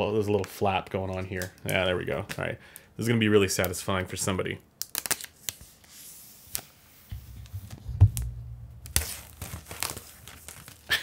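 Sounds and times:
low rumble: 7.1s - 9.4s
paper tearing: 8.8s - 10.9s.

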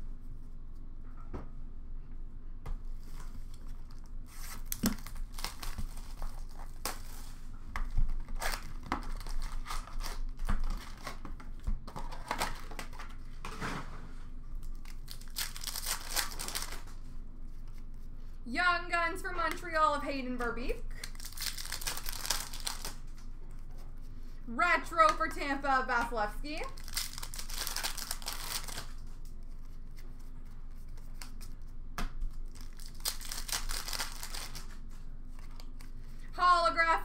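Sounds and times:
card pack wrappers crinkling and tearing: 3.1s - 13.2s, 14.6s - 17.0s, 20.9s - 23.3s, 26.6s - 30.2s, 32.3s - 36.0s.

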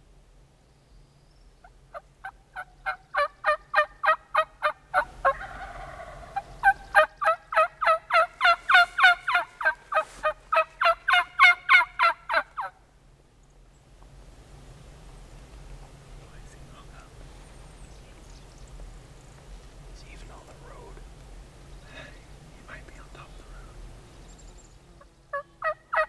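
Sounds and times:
turkey yelping: 1.9s - 12.8s, 25.3s - 26.0s.

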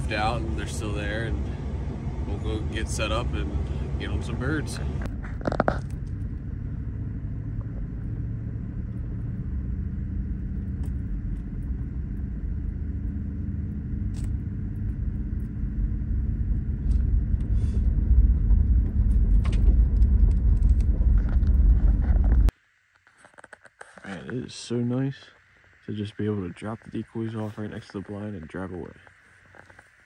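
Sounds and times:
truck engine rumble: 0.0s - 22.5s.

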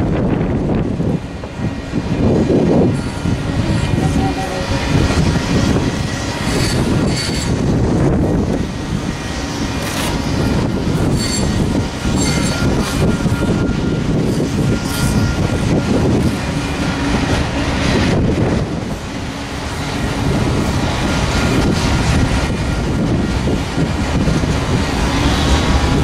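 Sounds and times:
train wheels rolling on rails: 0.0s - 26.0s
high wheel squeals: 11.0s - 15.9s.

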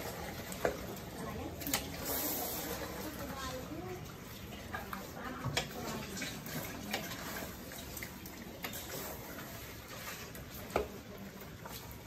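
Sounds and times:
meat sizzling in a wok: 0.0s - 4.5s.

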